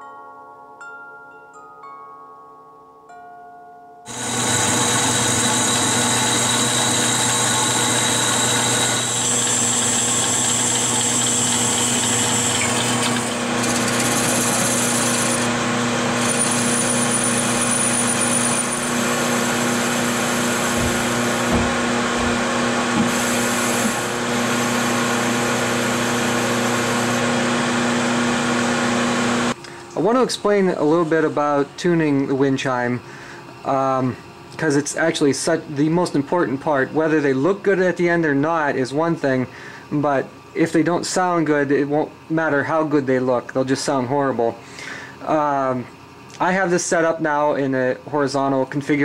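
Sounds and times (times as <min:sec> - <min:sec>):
bandsaw cutting metal: 0:04.1 - 0:29.6
metal lathe machining: 0:04.1 - 0:29.6
steady machine hum: 0:04.1 - 0:46.9.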